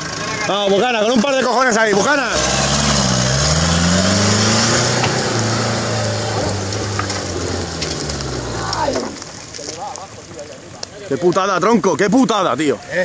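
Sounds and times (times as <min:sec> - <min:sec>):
off-road vehicle engine revving: 0:00.0 - 0:09.4
wheels churning dirt: 0:00.0 - 0:13.0.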